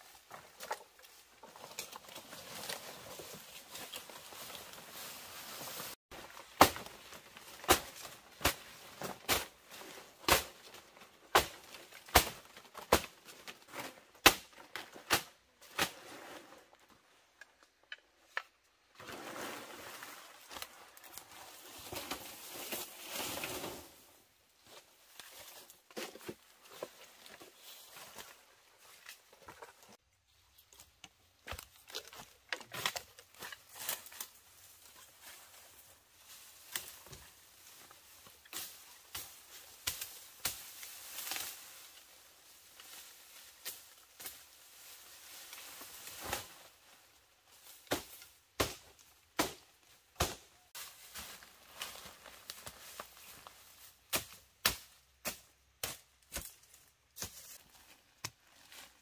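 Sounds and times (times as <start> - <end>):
rustling or scraping: 0.0 - 11.1, 14.7 - 47.8.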